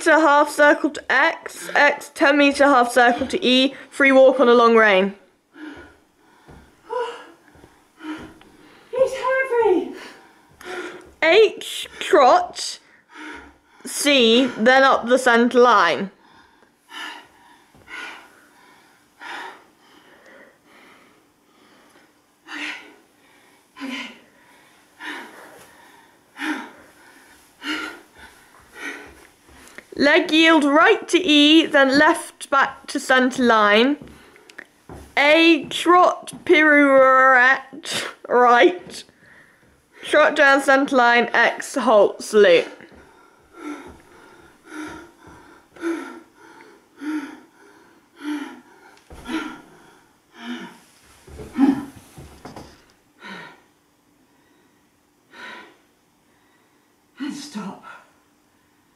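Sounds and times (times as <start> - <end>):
person panting heavily: 5.5 - 8.9, 9.9 - 11.2, 12.8 - 14.7, 16.2 - 29.8, 42.7 - 52.2, 53.2 - 53.7, 55.3 - 56.8
person gasping: 42.8 - 50.8.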